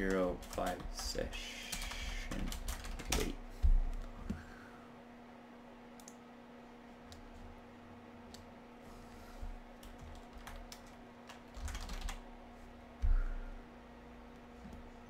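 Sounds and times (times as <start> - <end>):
keyboard typing: 0.0 - 3.3, 9.8 - 12.2
steady low hum: 0.0 - 15.0.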